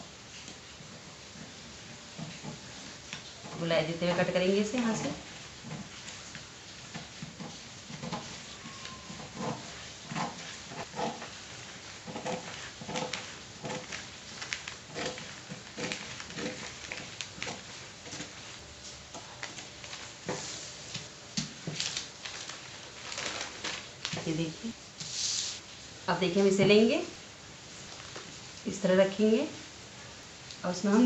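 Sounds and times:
paper rustling: 4.1 - 25.8, 27.8 - 28.6
scissors snipping newspaper: 12.0 - 20.2.

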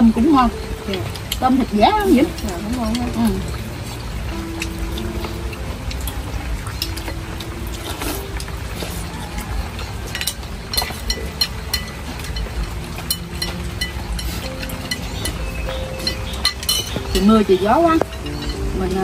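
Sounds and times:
low wind rumble: 0.0 - 19.0
steady rain: 0.0 - 19.0
spoons clinking against bowls: 0.3 - 19.0.

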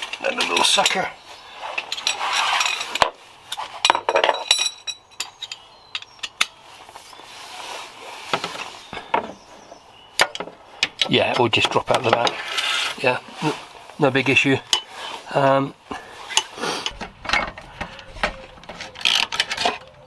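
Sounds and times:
rustle: 0.0 - 19.8
metal socket tools clinking: 3.8 - 6.6.

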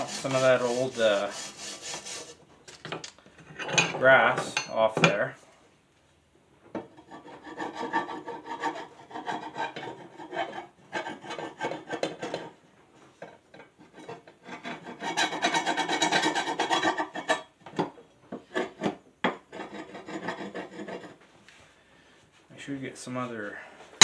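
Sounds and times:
tool scraping grass off metal blade: 0.0 - 2.3.

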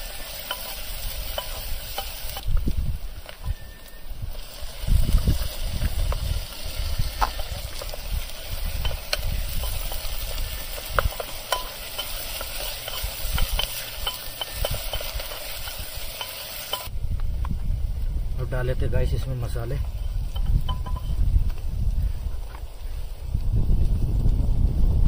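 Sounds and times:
onions sizzling in oil: 0.0 - 16.9
stirring clicks and scrapes: 7.2 - 16.9.

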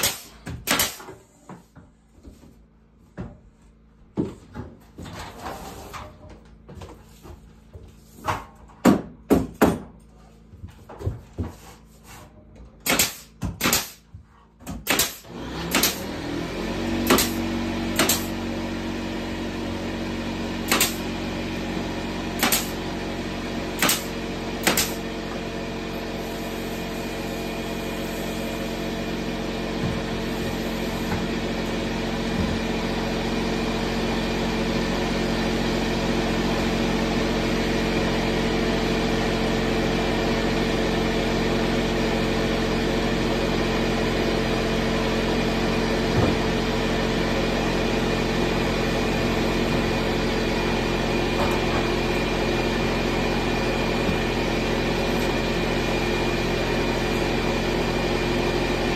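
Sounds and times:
pneumatic nailer shots: 0.0 - 1.3, 12.8 - 16.2, 17.0 - 18.4, 20.6 - 21.2, 22.3 - 23.0, 23.7 - 25.3
air compressor motor humming: 14.8 - 58.9.

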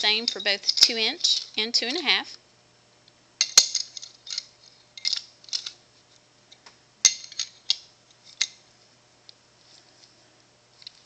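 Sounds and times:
metal wrench clicks and clinks: 0.0 - 1.6, 3.4 - 5.8.

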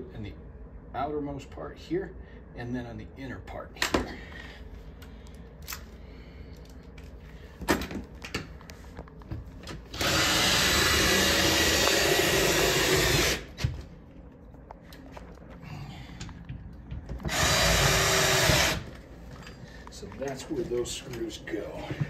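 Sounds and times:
cordless drill driving screw: 10.0 - 13.5, 17.3 - 18.9.

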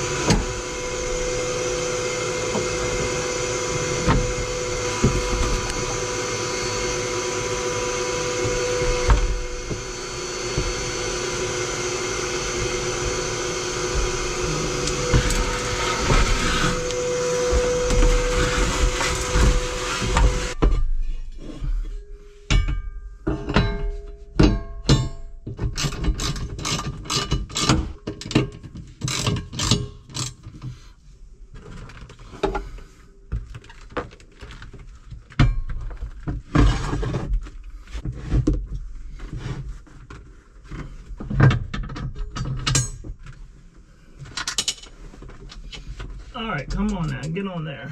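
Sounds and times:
shop vacuum whining: 0.0 - 20.7
metal plates knocking and clanking: 22.5 - 27.6.

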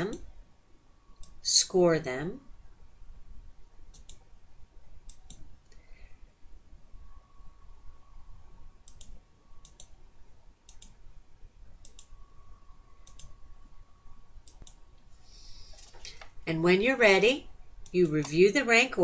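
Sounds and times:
computer mouse clicks: 3.9 - 4.2, 5.0 - 5.8, 8.8 - 10.0, 10.7 - 11.0, 11.8 - 12.1, 13.0 - 13.4, 14.4 - 14.8.

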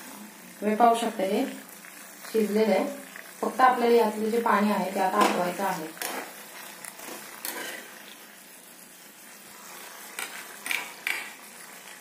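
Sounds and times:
metal spatula scraping a pan: 6.0 - 8.3.

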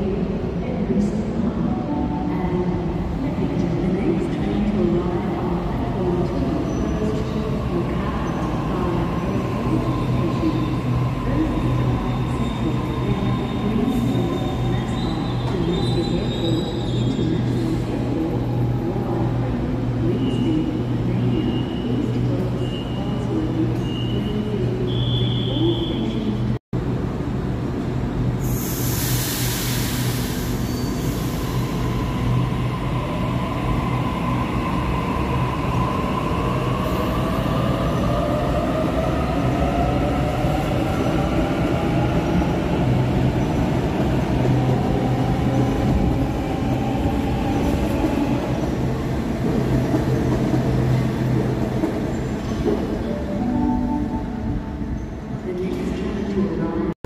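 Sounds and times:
air hiss: 28.4 - 31.5.

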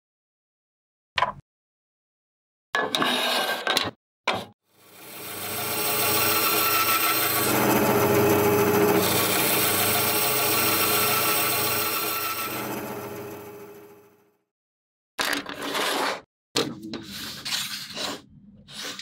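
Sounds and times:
electric saw cutting wood: 4.8 - 14.2.

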